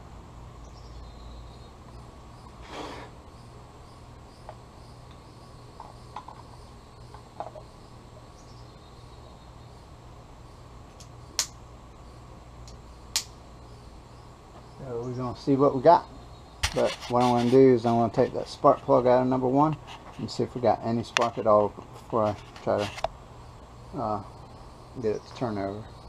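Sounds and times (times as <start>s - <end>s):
faint steady hum: 0.0s - 26.0s
small ticks: 10.9s - 11.6s
sharp click: 12.6s - 13.4s.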